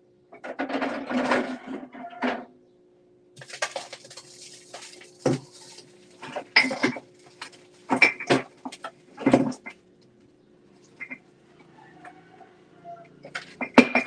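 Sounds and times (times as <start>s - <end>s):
hard objects clattering: 3.4s - 9.8s.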